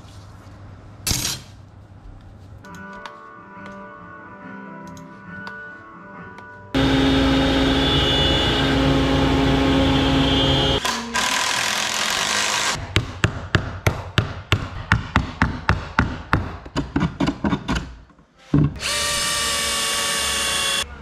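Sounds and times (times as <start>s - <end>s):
router spindle humming and whining: 6.8s - 12.8s, 18.8s - 20.8s.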